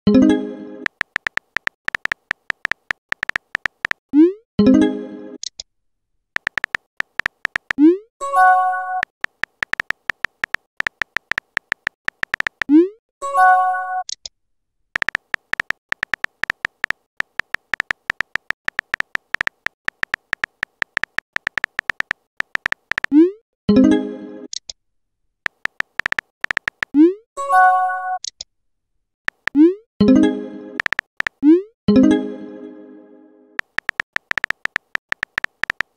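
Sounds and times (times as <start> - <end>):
message pop and chime: 0.1 - 0.9
phone keyboard clicking: 0.9 - 4.0, 6.4 - 7.8, 9.0 - 12.7, 15.0 - 23.2, 25.5 - 27.0, 29.3 - 29.6, 30.8 - 31.4, 33.6 - 35.9.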